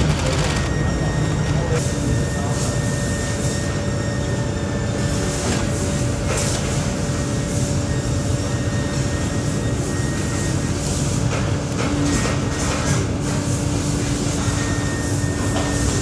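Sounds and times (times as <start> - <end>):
workshop machinery rumbling: 0.0 - 3.0, 10.1 - 16.0.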